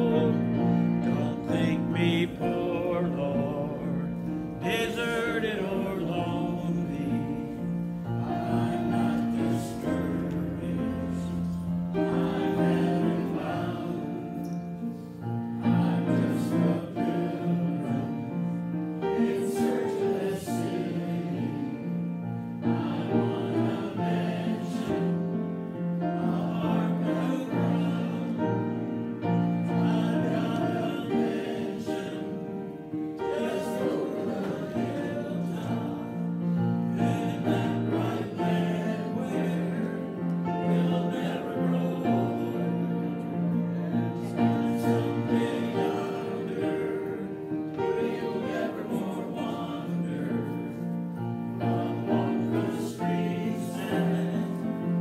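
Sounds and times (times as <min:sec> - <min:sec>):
hymn singing: 0:00.0 - 0:55.0
piano accompaniment: 0:00.0 - 0:55.0.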